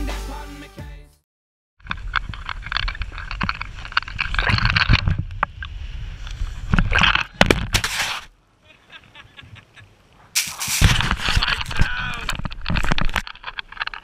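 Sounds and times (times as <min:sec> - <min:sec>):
sand scraping against camera: 0:01.8 - 0:08.4, 0:10.2 - 0:14.0.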